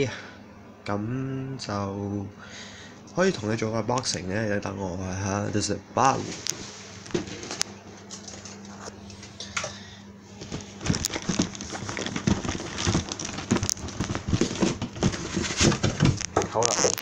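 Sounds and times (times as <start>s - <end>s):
faint steady hum: 0.0s - 17.0s
plastic bags crinkling: 10.3s - 17.0s
cardboard box being handled: 10.4s - 16.2s.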